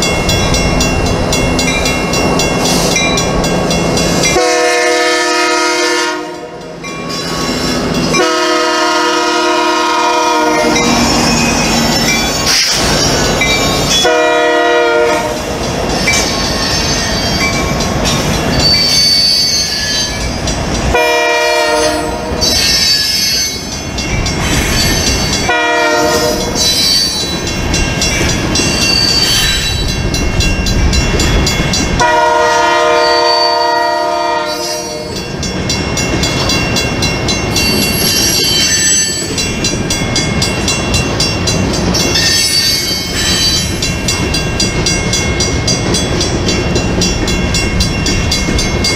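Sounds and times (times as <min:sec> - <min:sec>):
freight train rumbling on rails: 0:00.0 - 0:48.9
locomotive horn blasts: 0:04.4 - 0:06.6, 0:08.2 - 0:11.0, 0:14.0 - 0:15.4, 0:20.9 - 0:22.4, 0:25.5 - 0:26.5, 0:32.0 - 0:35.2.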